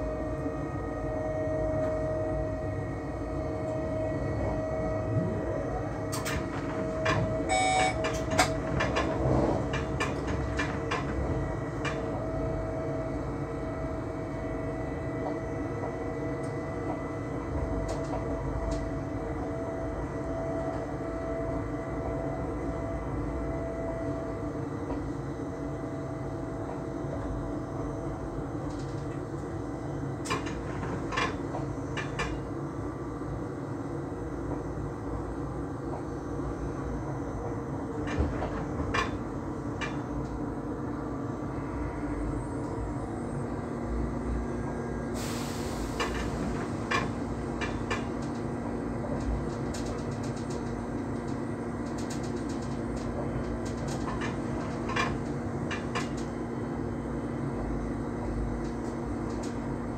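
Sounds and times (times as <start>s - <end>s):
train rumble and hum: 0.0s - 59.9s
wheels clicking over rail joints: 46.0s - 56.3s.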